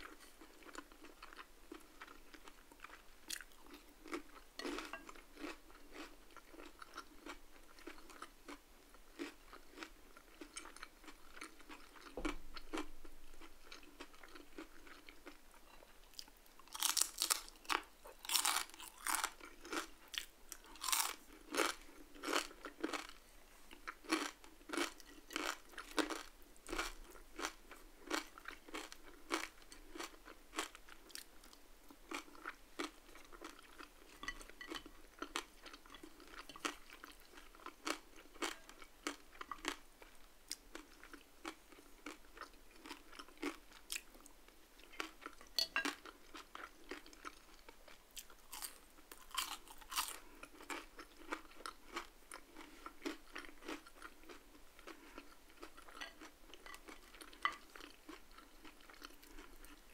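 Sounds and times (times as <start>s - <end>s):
soft chewing: 0.0s - 59.9s
crisp crunching of fried skin: 16.6s - 21.7s, 48.2s - 52.0s.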